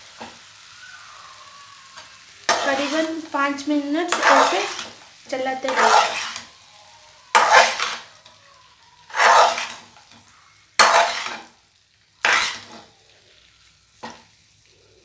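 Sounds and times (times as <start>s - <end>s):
noodles sizzling: 0.0s - 15.0s
spatula scraping a pan: 2.0s - 3.2s, 4.0s - 6.6s, 7.3s - 8.4s, 9.0s - 11.6s, 12.2s - 13.0s.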